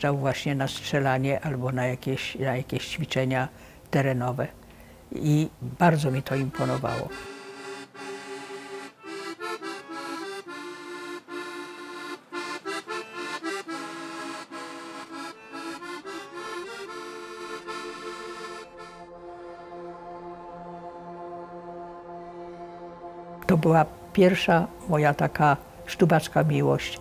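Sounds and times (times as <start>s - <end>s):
soft held chord: 5.2s - 27.0s
instrumental melody: 5.3s - 27.0s.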